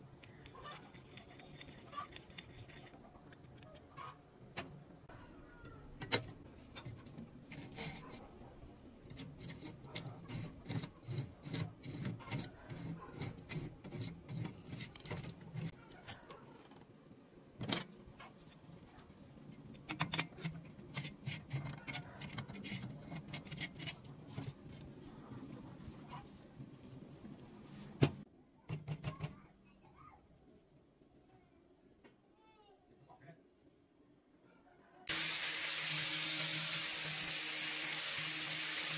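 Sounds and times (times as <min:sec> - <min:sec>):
metal rubbing and scraping: 0:06.7 - 0:15.8.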